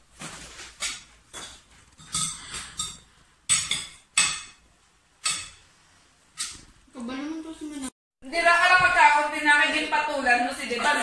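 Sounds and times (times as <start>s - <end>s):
cutlery clinking on plates: 0.8s - 4.6s.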